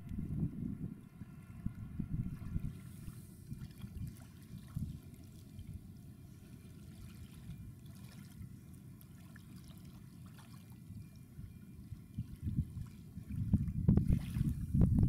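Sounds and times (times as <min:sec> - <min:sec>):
wind on microphone: 0:00.0 - 0:05.0, 0:12.1 - 0:15.0
faint water lapping: 0:01.1 - 0:15.0.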